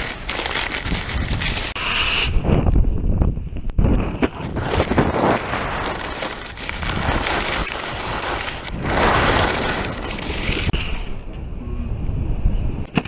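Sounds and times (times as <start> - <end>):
skis scraping over snow: 0.0 - 1.8, 4.4 - 10.8.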